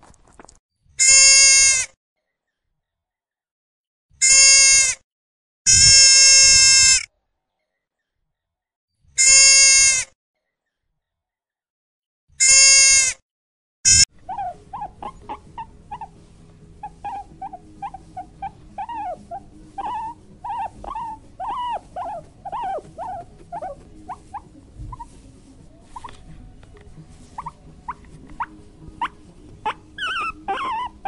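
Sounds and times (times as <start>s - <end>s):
sheep bleating: 1.0s - 1.8s, 4.2s - 5.0s, 5.7s - 7.0s, 9.2s - 10.0s, 12.4s - 13.1s, 13.9s - 14.1s
young boars squeaking: 13.9s - 16.2s, 16.8s - 26.3s, 27.3s - 31.0s.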